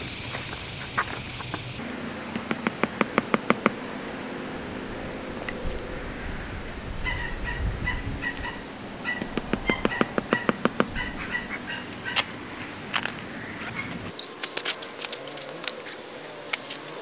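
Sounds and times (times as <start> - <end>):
bird knocking notes: 0.0 - 12.4.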